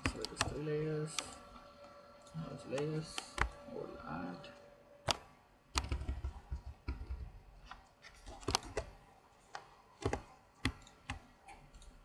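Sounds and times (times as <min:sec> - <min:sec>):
mouse and keyboard clicks: 0:05.0 - 0:12.0.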